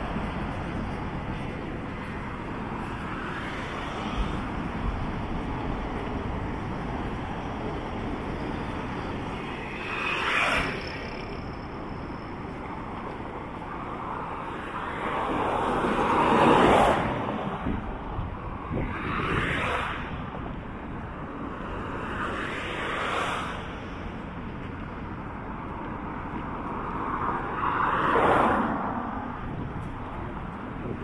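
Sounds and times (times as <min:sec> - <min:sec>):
road traffic on a bridge: 0:00.0 - 0:31.0
car passing close: 0:09.4 - 0:11.4, 0:18.6 - 0:20.2.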